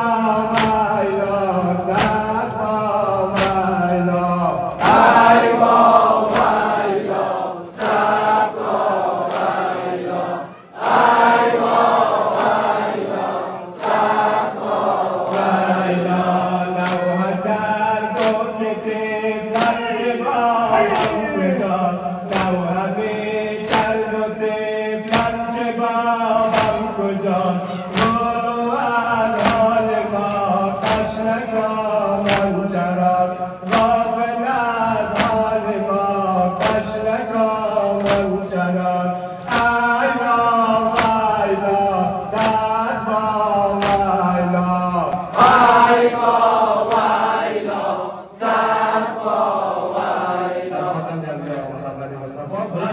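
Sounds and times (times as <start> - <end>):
men chanting a lament: 0.0 - 52.9
hands slapping chests: 0.4 - 4.2, 4.8 - 6.8, 9.2 - 9.6, 15.2 - 18.6, 19.5 - 19.9, 20.7 - 24.2, 25.0 - 25.7, 26.4 - 27.1, 27.7 - 46.2, 46.8 - 47.9.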